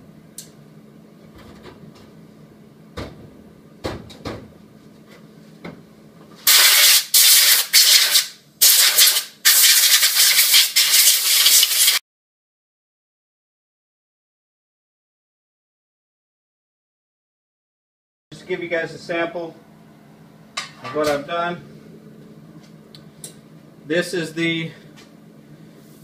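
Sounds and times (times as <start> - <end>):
compressed air hissing: 6.5 - 12.0.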